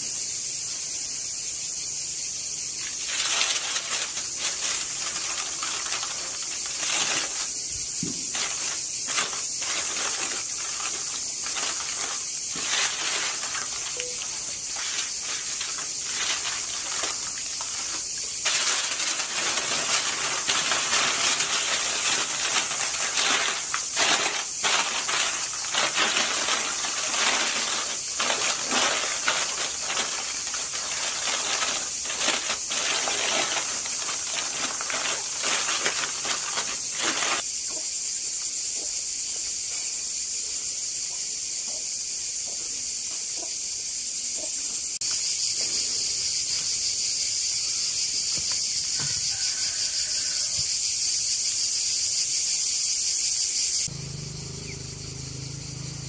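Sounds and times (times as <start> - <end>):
aluminium foil crinkling: 2.8 - 37.4.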